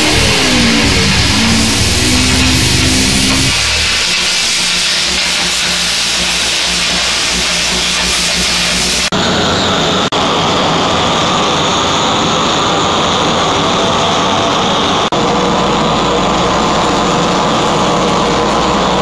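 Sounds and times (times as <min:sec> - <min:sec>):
arc gouging crackling hiss: 0:00.0 - 0:09.1
gas torch burning: 0:00.0 - 0:19.0.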